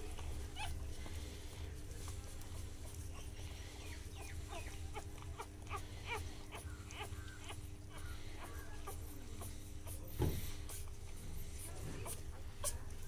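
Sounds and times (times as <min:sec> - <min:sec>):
puppies squeaking: 0:00.0 - 0:01.3, 0:02.0 - 0:13.0
low steady hum: 0:00.0 - 0:13.0.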